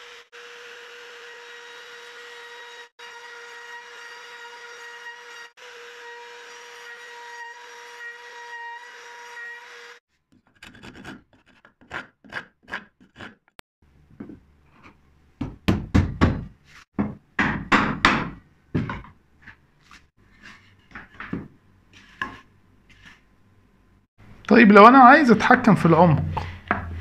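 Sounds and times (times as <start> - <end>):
hand rasp filing wood: 10.6 - 13.4.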